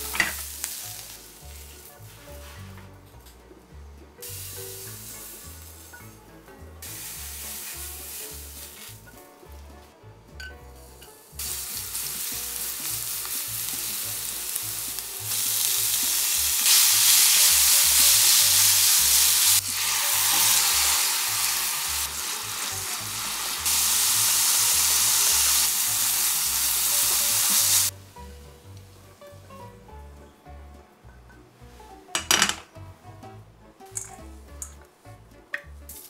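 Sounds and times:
oil sizzling in a frying pan: 0.0s - 1.9s, 4.2s - 6.2s, 6.8s - 9.2s, 11.2s - 27.9s.

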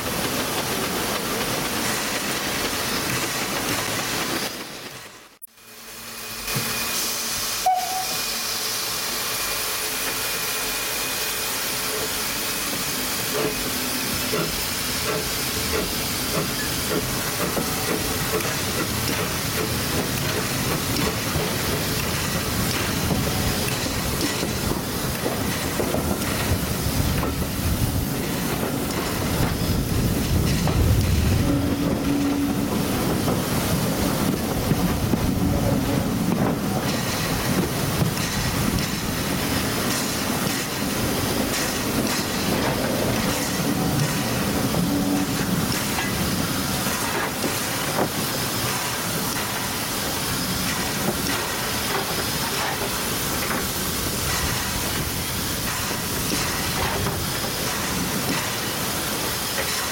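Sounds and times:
steam locomotive hissing: 0.0s - 59.9s
wheels rumbling on rails: 13.2s - 59.9s.

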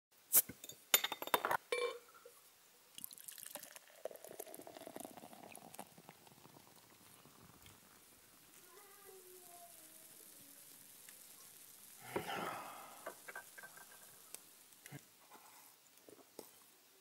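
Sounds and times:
beer pouring into glass: 2.9s - 14.9s.

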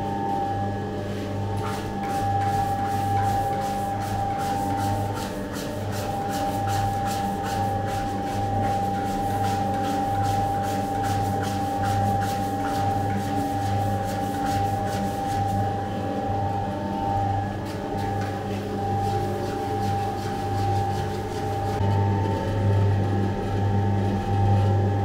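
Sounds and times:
electric dough mixer motor whine: 0.0s - 25.0s.

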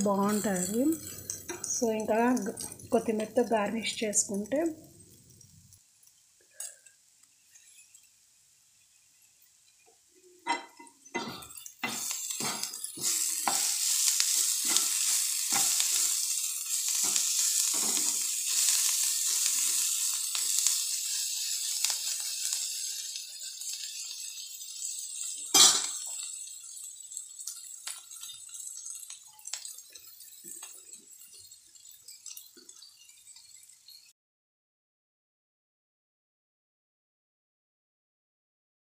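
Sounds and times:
vegetables sizzling in frying pan: 0.0s - 34.1s
spatula scraping and knocking pan: 10.4s - 16.2s, 16.9s - 18.4s.

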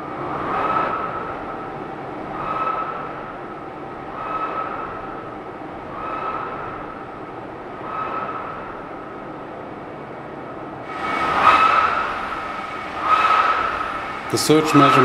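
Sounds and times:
compressor whining: 10.8s - 15.0s
surge of rushing air: 10.8s - 15.0s.

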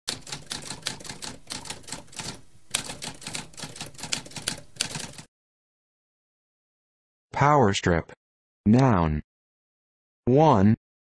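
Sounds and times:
typewriter keys clacking: 0.1s - 5.3s.

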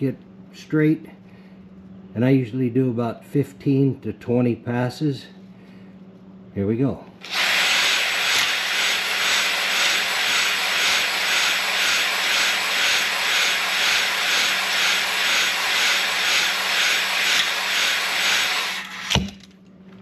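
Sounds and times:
drill spinning grinding hone: 7.2s - 19.2s.

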